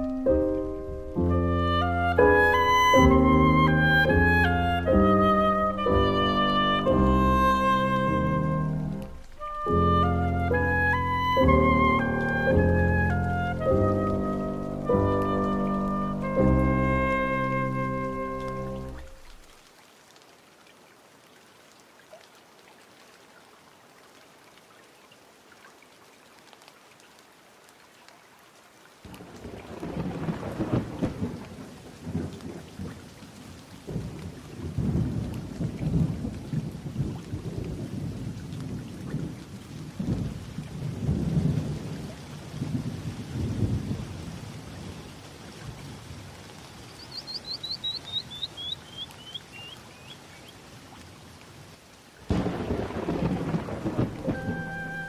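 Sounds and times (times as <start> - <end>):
rain hiss: 0.0 - 55.0
rolling thunder: 29.1 - 33.0, 33.9 - 44.4, 52.3 - 55.0
bird chirping: 46.8 - 50.5.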